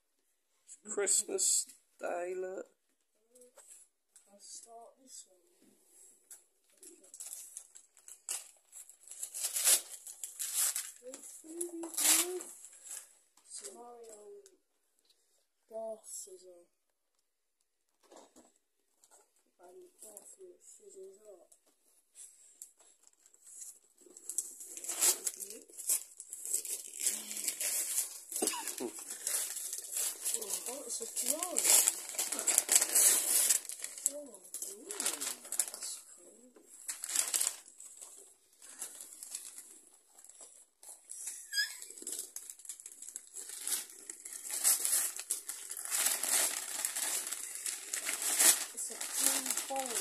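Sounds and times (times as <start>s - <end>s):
wrapping paper crinkling and tearing: 6.7s - 14.4s, 22.2s - 50.0s.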